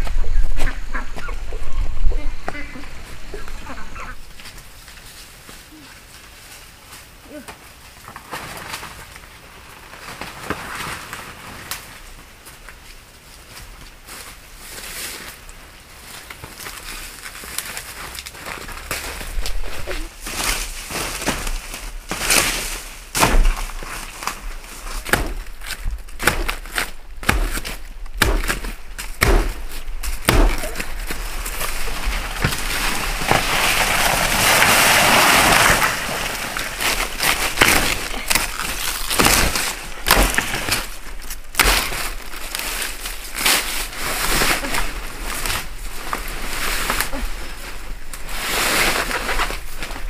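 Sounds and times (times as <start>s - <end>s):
dry leaves and twigs crackling: 0.0s - 50.0s
heavy rustling: 16.1s - 50.0s.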